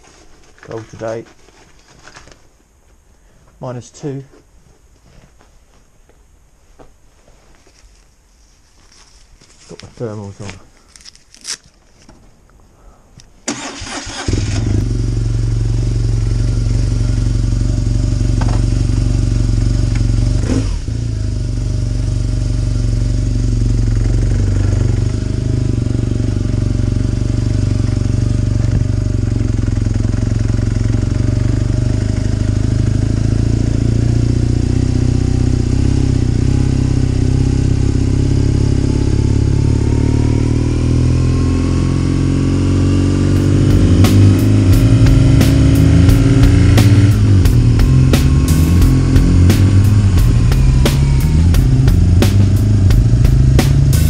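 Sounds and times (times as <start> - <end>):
motorcycle engine cranking: 13.4 - 15.3
motorcycle pulling away: 13.5 - 54.0
motorcycle engine idling: 13.8 - 40.2, 43.4 - 54.0.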